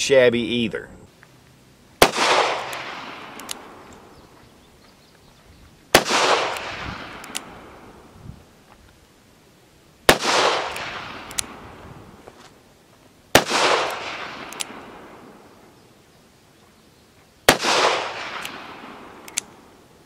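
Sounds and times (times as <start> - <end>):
revolver shots echoing: 2.0 - 3.8, 5.9 - 7.8, 10.1 - 11.6, 13.4 - 15.2, 17.5 - 19.2.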